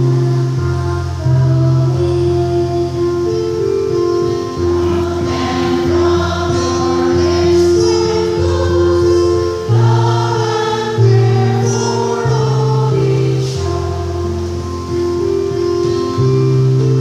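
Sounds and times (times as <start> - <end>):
low bass line: 0.0 - 10.3
instrumental accompaniment: 0.0 - 17.0
choir of women singing: 4.6 - 15.2.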